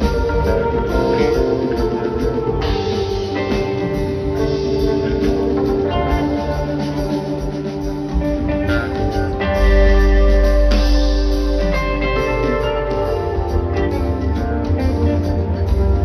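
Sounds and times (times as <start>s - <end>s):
drums: 0.0s - 16.0s
electric guitar: 0.0s - 16.0s.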